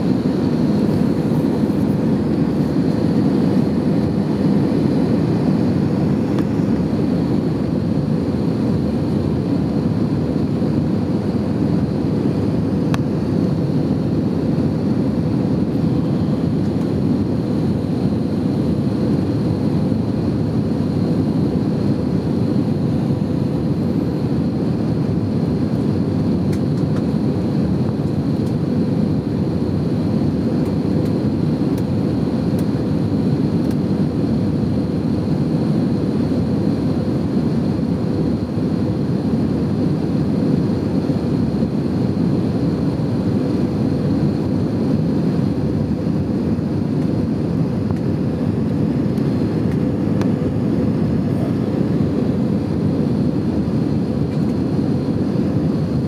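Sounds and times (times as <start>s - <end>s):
rushing air: 0.0s - 9.2s
thin high whine: 0.0s - 26.8s
jet engine roar: 0.0s - 56.0s.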